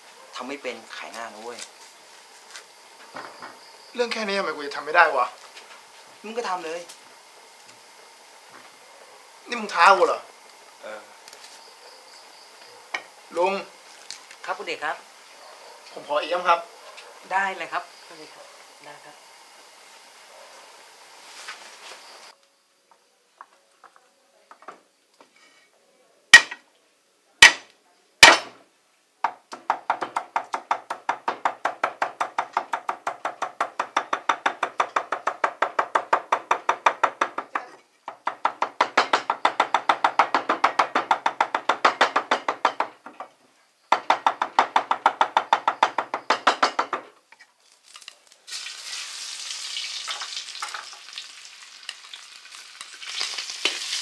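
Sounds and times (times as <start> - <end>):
food sizzling in a wok: 17.3 - 22.4, 47.6 - 54.0
cleaver chopping on wooden block: 26.4 - 26.6, 27.4 - 28.6, 29.3 - 42.9.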